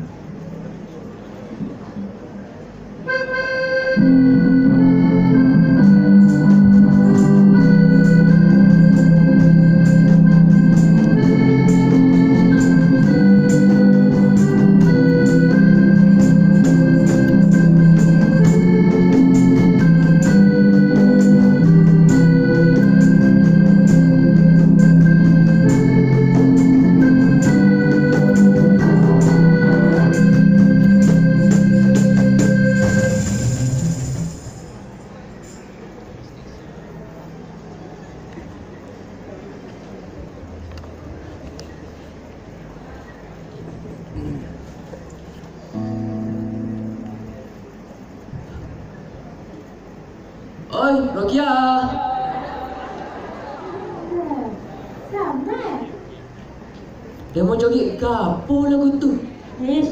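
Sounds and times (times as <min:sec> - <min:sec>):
organ-like keyboard chords: 0:00.0 - 0:51.2, 0:51.8 - 0:57.3
melody of held notes: 0:03.0 - 0:36.2, 0:40.4 - 0:50.7
steady beat: 0:03.9 - 0:35.0.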